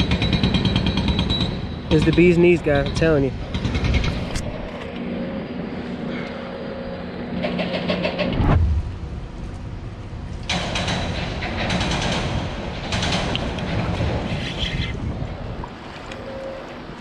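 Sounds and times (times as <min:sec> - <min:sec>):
engine humming: 0:03.3 - 0:17.0
heavy thump: 0:08.3 - 0:09.1.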